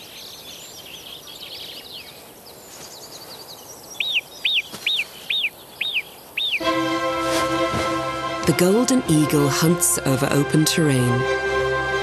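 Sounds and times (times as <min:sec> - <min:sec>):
small birds chirping: 0:00.0 - 0:06.7.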